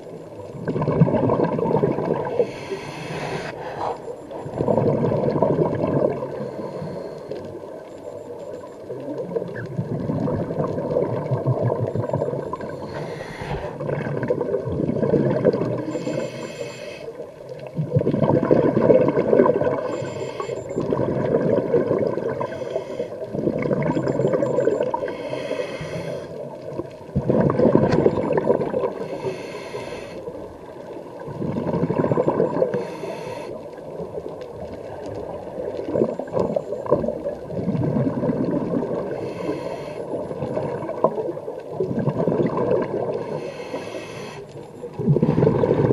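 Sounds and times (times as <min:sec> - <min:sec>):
bubbling gurgling exhalations: 0:00.6 - 0:07.0, 0:09.2 - 0:16.3, 0:17.7 - 0:25.3, 0:26.4 - 0:29.3, 0:31.1 - 0:32.9, 0:33.6 - 0:43.5, 0:44.9 - 0:45.9
scuba regulator hissing inhalations: 0:02.2 - 0:04.2, 0:12.7 - 0:13.9, 0:15.8 - 0:17.2, 0:19.8 - 0:20.7, 0:22.4 - 0:23.2, 0:24.9 - 0:26.5, 0:28.9 - 0:30.4, 0:32.6 - 0:33.6, 0:39.0 - 0:40.3, 0:43.2 - 0:44.6.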